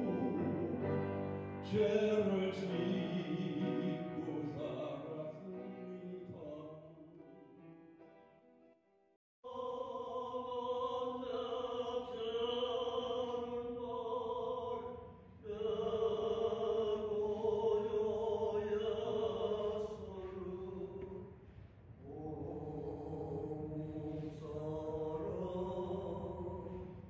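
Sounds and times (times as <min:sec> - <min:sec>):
slow chant-like singing: 0:09.4 - 0:27.0.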